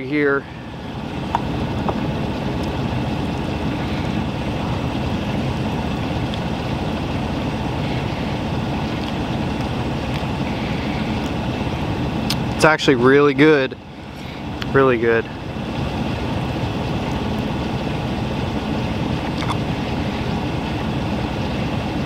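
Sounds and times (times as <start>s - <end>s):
low mechanical drone: 0.0s - 22.0s.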